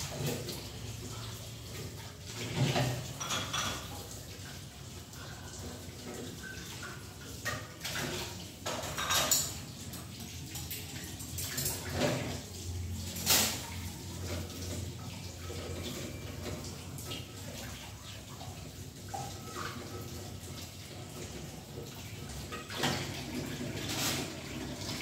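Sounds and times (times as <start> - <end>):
tap water running into sink: 0.0 - 25.0
dishes clattering: 2.4 - 4.4, 6.0 - 16.7.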